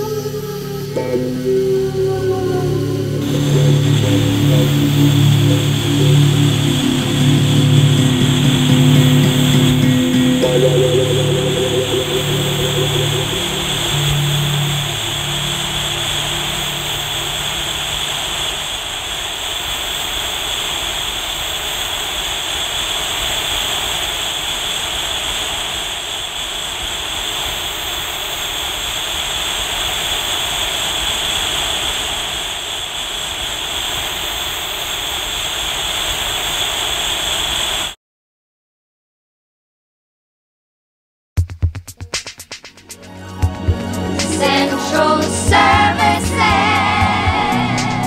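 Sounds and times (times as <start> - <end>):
low held musical chord: 0.0 - 18.3, 42.9 - 48.0
steady rushing drone: 0.0 - 37.6, 42.6 - 48.0.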